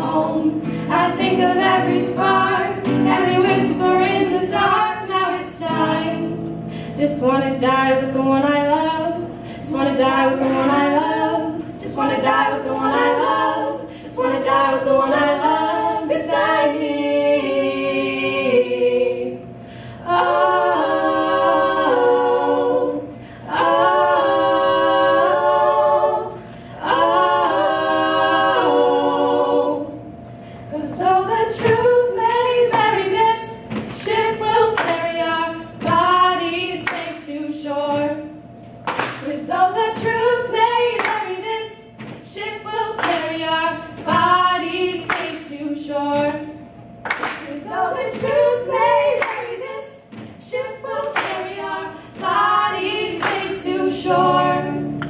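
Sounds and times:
women singing in harmony: 0:00.0 - 0:55.0
strummed acoustic guitar: 0:00.6 - 0:04.4
hand claps: 0:34.8 - 0:35.2, 0:36.8 - 0:37.2, 0:38.8 - 0:39.4, 0:41.0 - 0:41.4, 0:43.0 - 0:43.4, 0:45.1 - 0:45.4, 0:47.0 - 0:47.6, 0:49.2 - 0:49.6, 0:51.0 - 0:51.6, 0:53.2 - 0:53.6.

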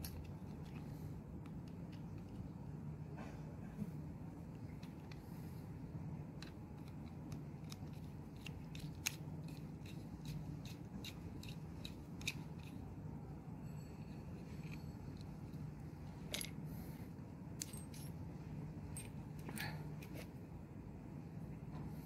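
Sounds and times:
steady low hum: 0:00.0 - 0:22.0
metal tool clicking on plastic: 0:06.3 - 0:12.8.

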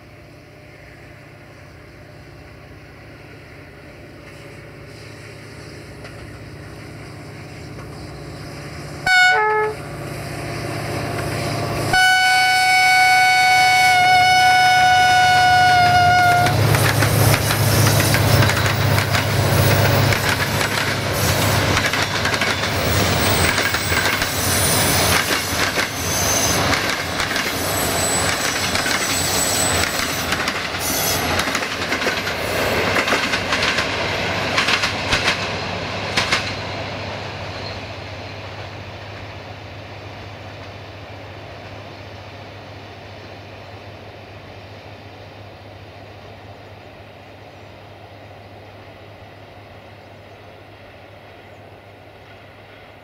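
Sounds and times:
locomotive horn blast: 0:09.0 - 0:10.0, 0:11.9 - 0:16.6
train wheels clattering on rails: 0:16.1 - 0:39.4.

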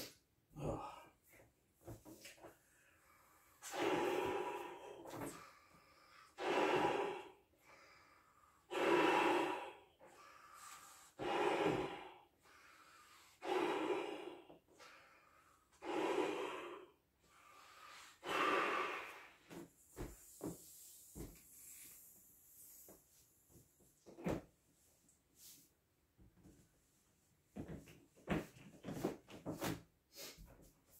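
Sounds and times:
man breathing heavily: 0:00.0 - 0:23.2
blowing into balloon: 0:03.6 - 0:05.5, 0:06.3 - 0:07.4, 0:08.7 - 0:14.4, 0:15.8 - 0:19.6.

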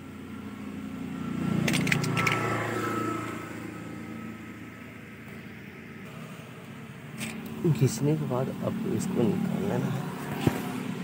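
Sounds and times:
vehicle engine: 0:00.0 - 0:11.0
pliers clicking on tyre plug: 0:01.6 - 0:02.5.

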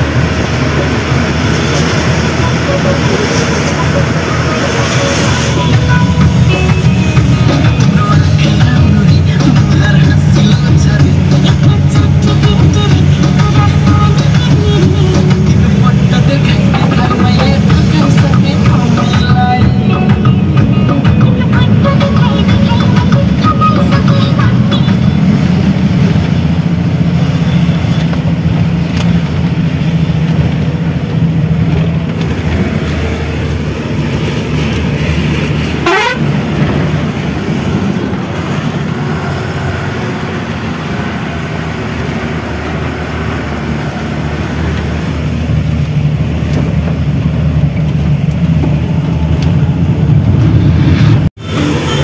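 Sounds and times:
vehicle engine humming: 0:00.0 - 0:52.0
vehicle horn: 0:02.2 - 0:07.9, 0:35.6 - 0:36.5.

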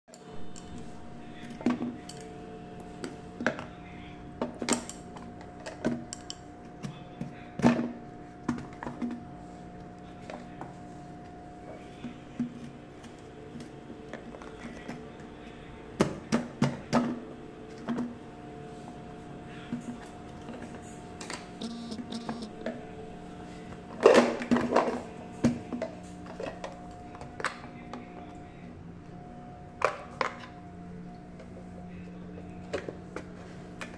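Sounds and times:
steady low hum: 0:21.5 - 0:23.4.

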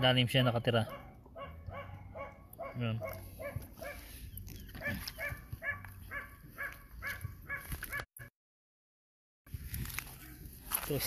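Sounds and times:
dog yapping: 0:00.9 - 0:04.1, 0:04.7 - 0:08.1.

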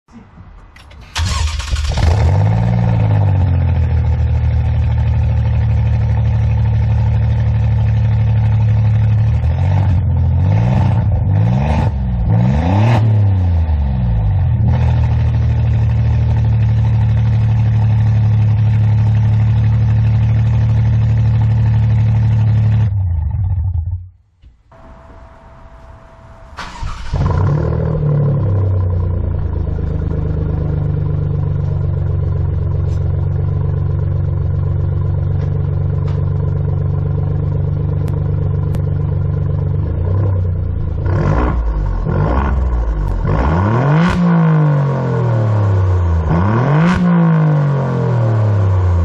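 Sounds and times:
car engine idling: 0:00.1 - 0:10.5, 0:14.1 - 0:43.6
engine throttle blips: 0:00.8 - 0:04.4, 0:21.4 - 0:44.6.

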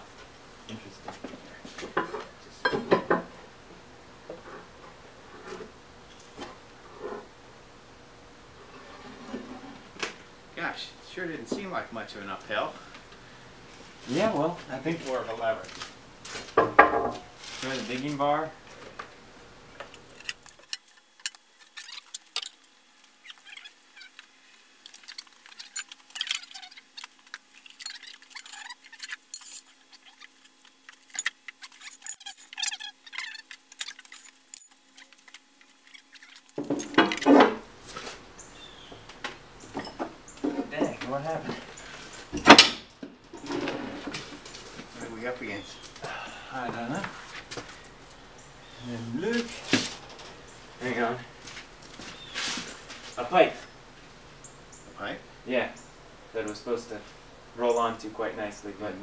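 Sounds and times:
metal bar clinking and scraping: 0:27.6 - 0:30.3, 0:30.9 - 0:37.3.

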